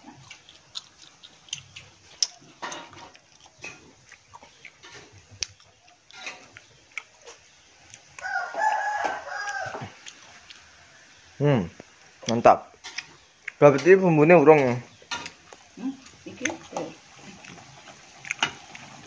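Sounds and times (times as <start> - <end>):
rooster crowing: 8.2 - 11.2.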